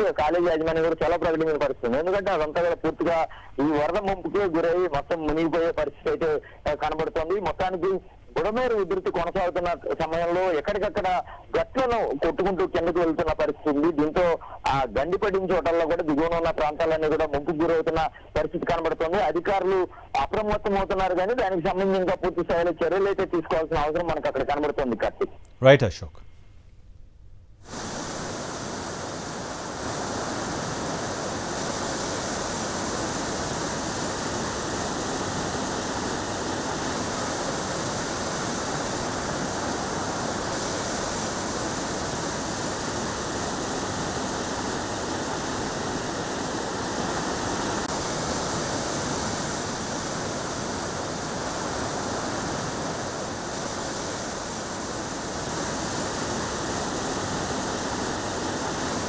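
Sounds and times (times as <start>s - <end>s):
floodwater rushing through breach: 28.8s - 59.0s.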